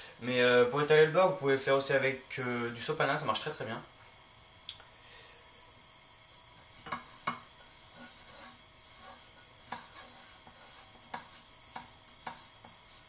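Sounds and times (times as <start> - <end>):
faint gas burner hiss: 0.0 - 13.0
pastry brush brushing a pan: 6.6 - 13.0.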